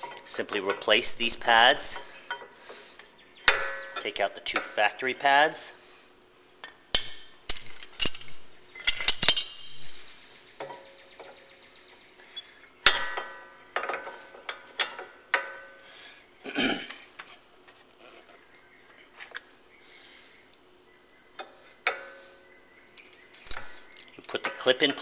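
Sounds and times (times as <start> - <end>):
metal brake pads clinking and scraping: 6.6 - 11.4, 12.3 - 15.8, 23.0 - 25.0.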